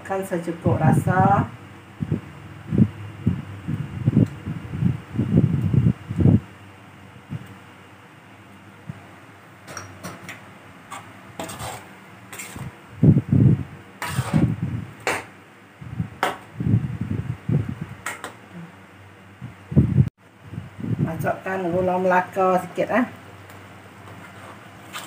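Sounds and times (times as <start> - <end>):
fan whirring: 0.0 - 25.0
ladle scraping a wok: 10.9 - 12.8, 14.0 - 15.3, 24.0 - 25.0.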